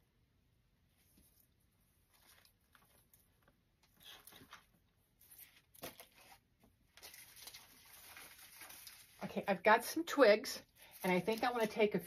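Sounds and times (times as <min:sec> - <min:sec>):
plastic foliage rustling and clicking: 0:01.1 - 0:09.4, 0:10.8 - 0:12.0.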